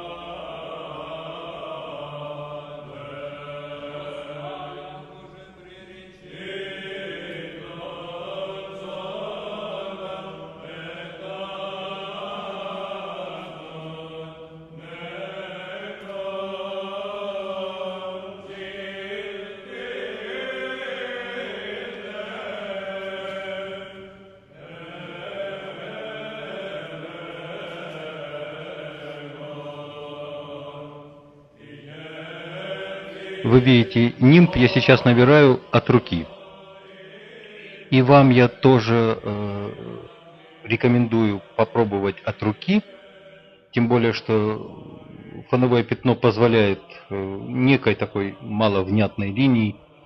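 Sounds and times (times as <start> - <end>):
slow chant-like singing: 0.0 - 50.0.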